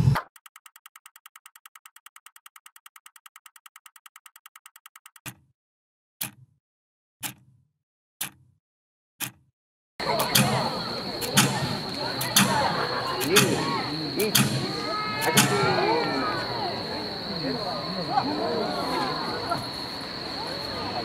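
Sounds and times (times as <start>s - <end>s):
fast electronic ticks: 0.2s - 5.4s, 10.1s - 15.5s.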